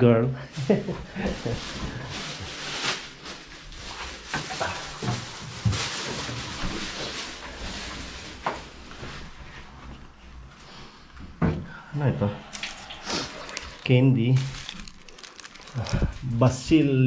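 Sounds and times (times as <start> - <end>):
plastic bag rustling: 0.6 - 9.6, 12.5 - 16.7.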